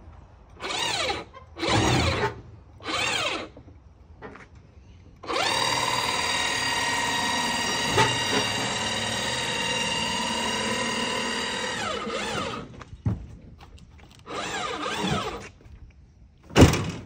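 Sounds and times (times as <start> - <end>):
electric motor whining: 14.2 - 15.5.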